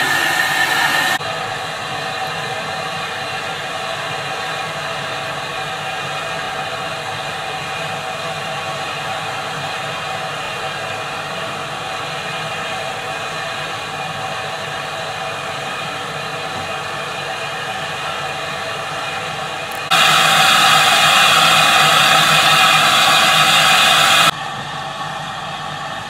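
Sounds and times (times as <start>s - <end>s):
steady steam hiss: 0.0s - 24.3s
loud steam escaping: 0.0s - 24.4s.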